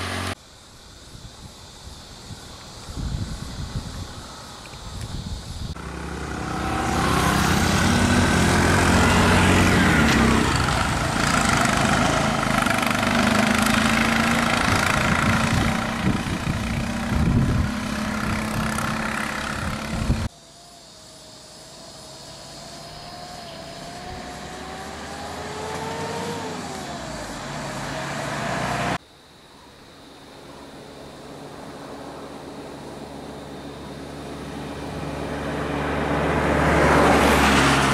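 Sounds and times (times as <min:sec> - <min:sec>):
auto-rickshaw engines running: 0:00.0 - 0:00.4, 0:03.8 - 0:20.3, 0:21.1 - 0:29.0, 0:31.2 - 0:37.9
engine rising and falling pitch: 0:05.8 - 0:20.3, 0:22.1 - 0:29.0.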